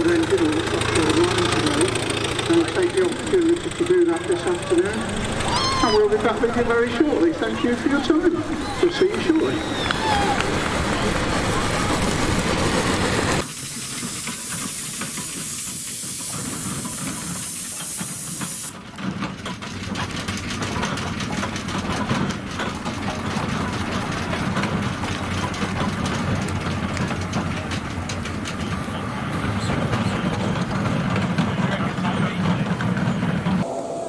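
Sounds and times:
engine low running rumble: 0.0 - 17.6, 18.2 - 34.0
loud steam hiss: 11.6 - 18.8.

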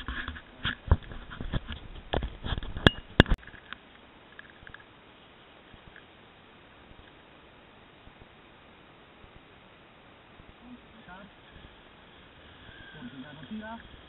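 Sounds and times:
faint hiss: 3.7 - 14.0.

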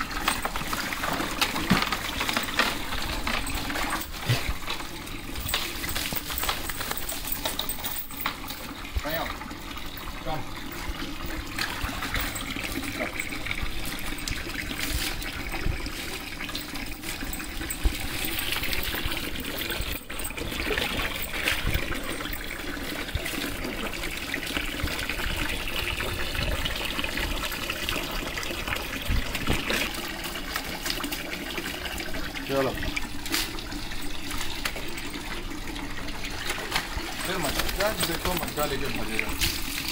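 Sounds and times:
water trickling and splashing: 0.0 - 39.9.

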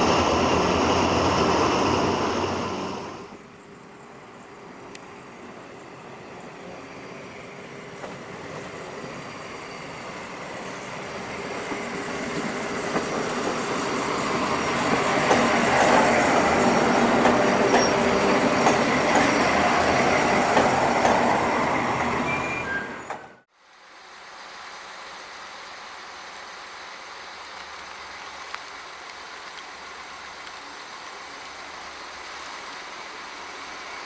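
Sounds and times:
diesel locomotives passing: 0.0 - 3.5, 4.1 - 23.4
wheels clicking over rail joints: 14.8 - 19.6.

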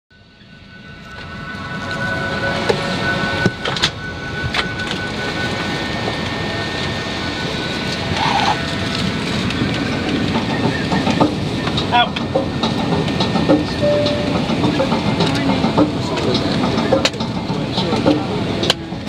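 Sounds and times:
airplane cabin noise: 0.2 - 19.0
faint high tone: 13.8 - 14.5.

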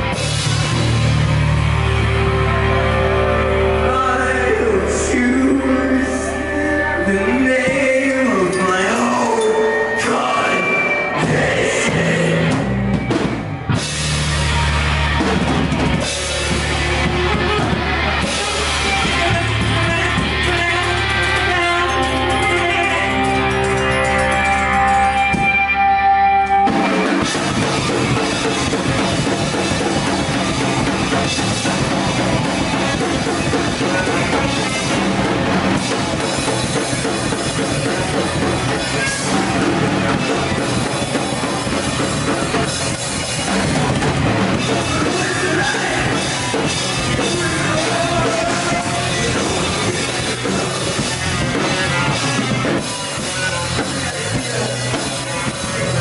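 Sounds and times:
bass guitar: 0.0 - 56.0
drum kit: 0.0 - 56.0
electric guitars: 0.0 - 56.0
saxophone: 16.9 - 26.9.

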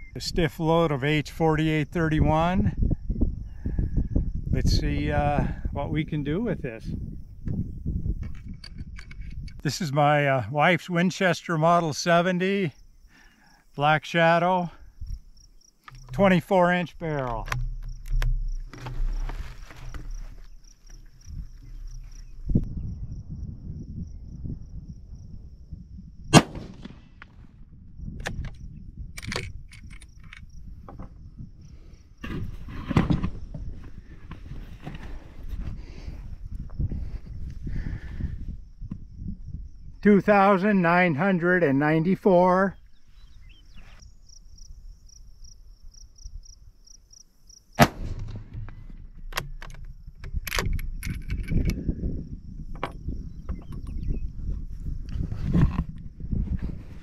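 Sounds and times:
handling noise: 15.8 - 22.6, 47.8 - 51.7
footsteps on dry grass: 17.6 - 22.5
rifle shot: 26.3 - 27.3, 47.8 - 48.9
rifle bolt clicks: 29.2 - 30.5, 49.3 - 51.8
sharp click: 47.8 - 51.8.

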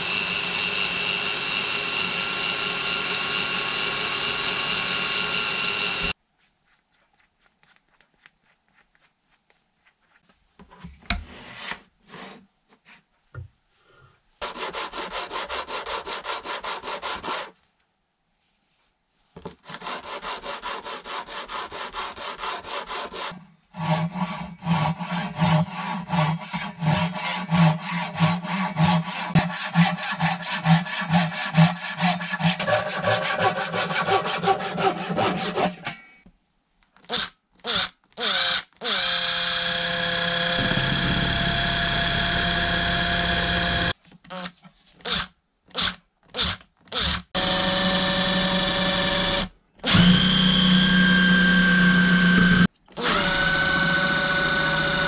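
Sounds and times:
cordless drill boring into wood: 0.0 - 6.2, 37.0 - 43.9, 45.1 - 55.0
hand saw cutting wood: 14.4 - 17.6, 19.7 - 36.0.

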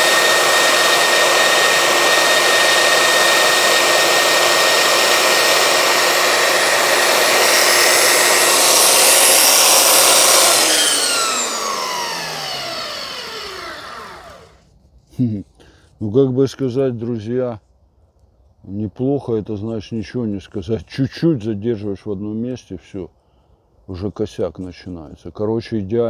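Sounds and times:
belt sander grinding wood: 0.0 - 14.6
motor spinning down whine: 0.0 - 14.6.

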